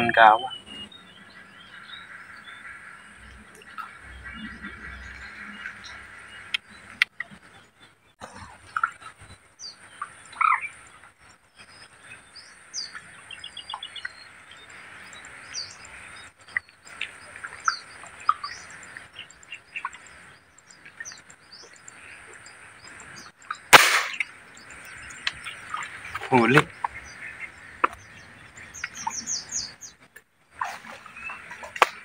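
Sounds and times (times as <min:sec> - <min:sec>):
birds chirping and calling: 0:00.0 - 0:30.0
sharp airgun shot: 0:23.7 - 0:24.3.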